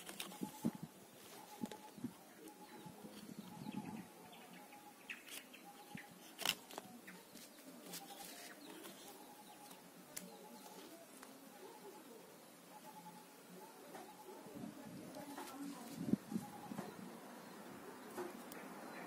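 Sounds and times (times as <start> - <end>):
leafy twigs rustling: 0.0 - 12.0, 14.6 - 17.0.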